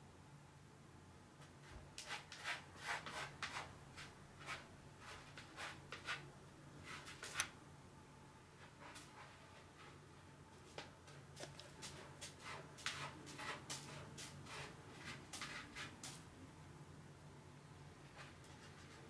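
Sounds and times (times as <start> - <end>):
cat scratching in litter: 2.0 - 7.5, 11.4 - 16.2.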